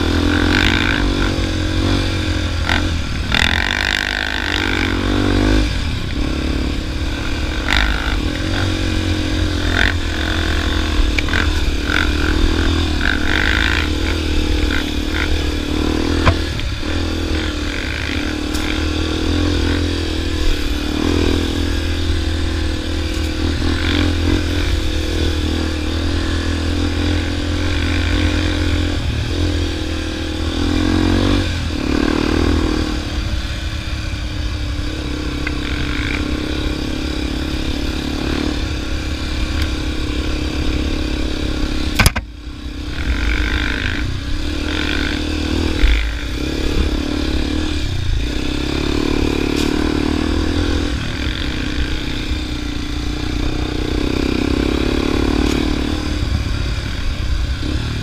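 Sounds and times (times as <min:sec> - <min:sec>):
motorcycle engine revving: 0:00.0 - 0:58.0
sharp knock: 0:42.0 - 0:42.3.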